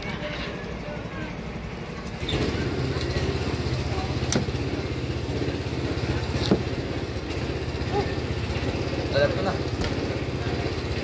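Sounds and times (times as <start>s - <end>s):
small engine idling: 0.0s - 11.0s.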